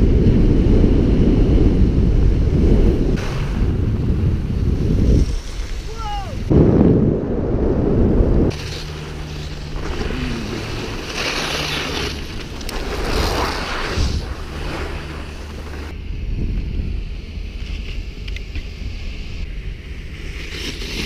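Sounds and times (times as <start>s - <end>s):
wind buffeting microphone: 0.0s - 20.4s
skis sliding over snow: 4.4s - 6.5s, 8.5s - 16.0s, 19.9s - 21.0s.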